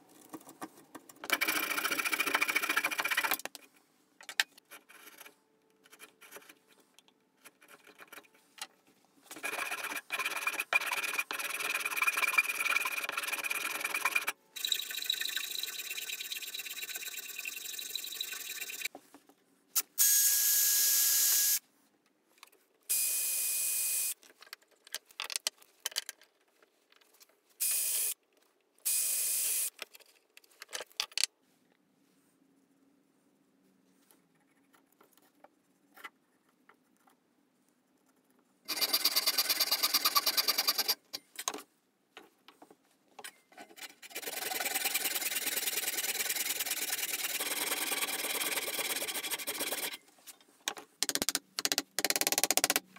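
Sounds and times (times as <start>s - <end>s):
handsaw cutting wood: 9.4s - 14.4s, 43.9s - 50.0s.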